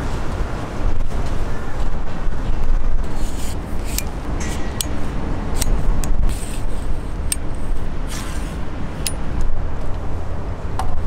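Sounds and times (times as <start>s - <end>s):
steady low rumble: 0.0s - 11.0s
metal pole sections sliding: 3.1s - 9.2s.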